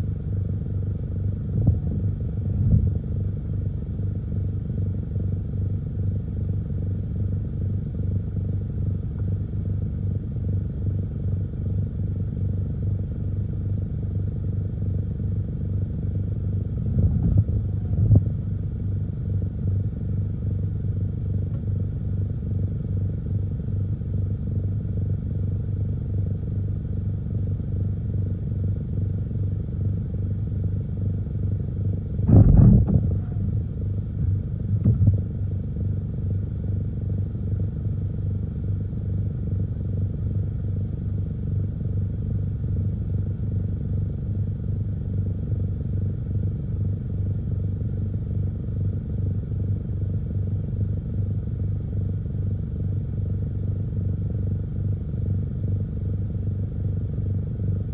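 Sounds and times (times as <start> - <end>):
car idling hum: 0.0 - 57.9
dull thumps: 1.5 - 3.0, 32.2 - 35.4.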